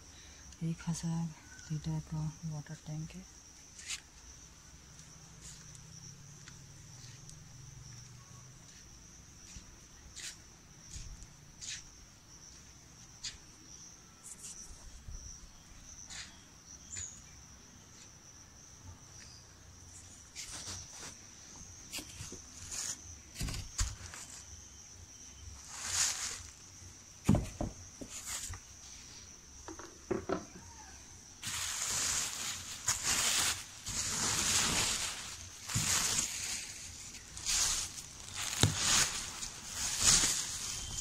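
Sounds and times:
high-pitched insect buzz: 2.3 - 18.4, 27.9 - 41.0
crinkling rustles: 20.0 - 24.6, 25.5 - 29.0, 31.4 - 41.0.

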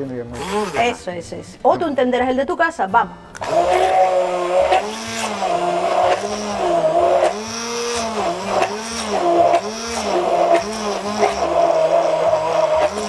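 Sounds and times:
immersion blender running: 0.4 - 1.0, 3.4 - 13.0.

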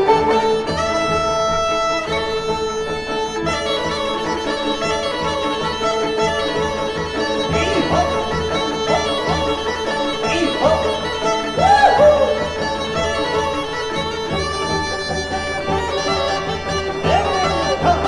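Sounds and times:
instrumental music with drone: 0.0 - 18.0.

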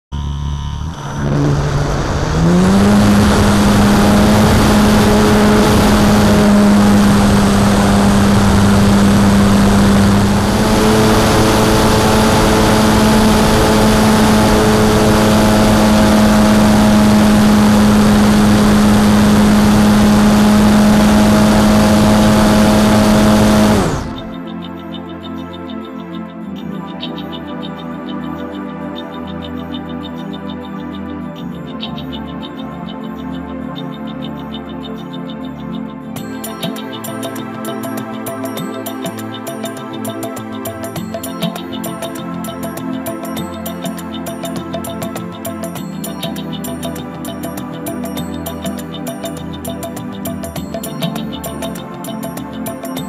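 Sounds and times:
electric motor whine: 0.1 - 24.4
rushing air: 0.9 - 15.6.

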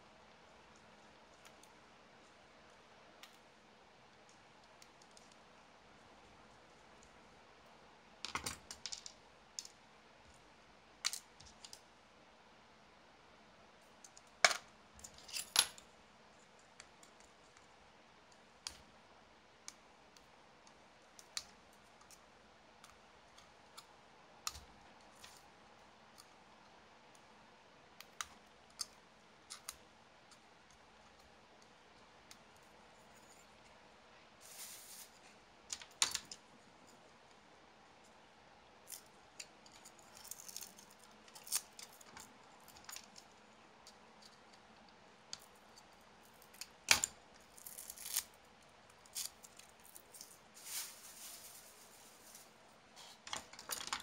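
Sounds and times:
screwdrivers and metal parts clicking: 53.3 - 54.0.

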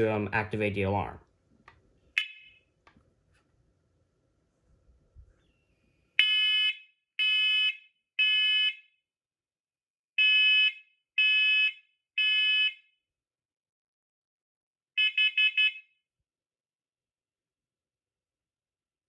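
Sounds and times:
smoke alarm beeps: 2.2 - 2.7, 15.0 - 15.9.

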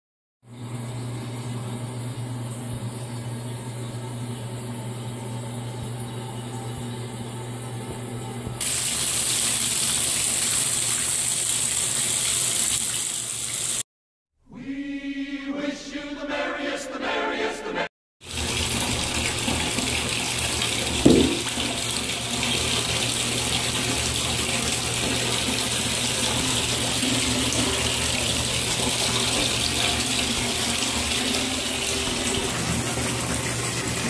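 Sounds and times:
water running from a tap: 8.6 - 13.9, 18.2 - 34.0.

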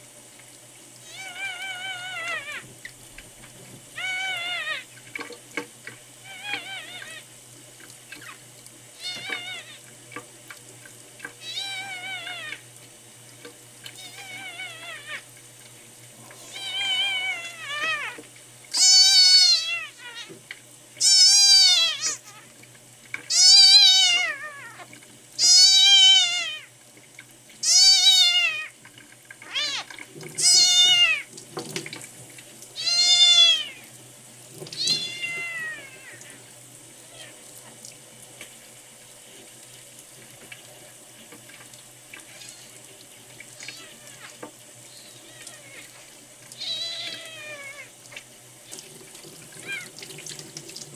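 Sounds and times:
kitten mewing: 1.0 - 2.6, 4.0 - 4.9, 6.2 - 7.2, 9.0 - 9.8, 11.4 - 12.6, 14.0 - 15.2, 16.4 - 18.2, 18.8 - 20.3, 21.0 - 22.5, 23.3 - 26.6, 27.6 - 28.7, 29.4 - 31.2, 32.8 - 33.8, 34.8 - 36.4, 46.6 - 47.9, 49.6 - 49.9
tap running into sink: 31.3 - 32.2.

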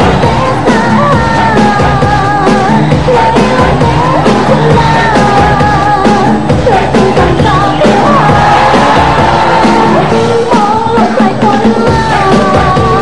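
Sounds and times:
crowd yelling: 6.6 - 10.5.

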